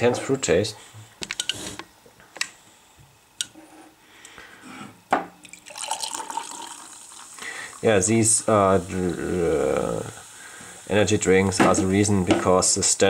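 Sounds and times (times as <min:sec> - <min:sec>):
fizzy drink pouring into glass: 0:05.4 - 0:09.2.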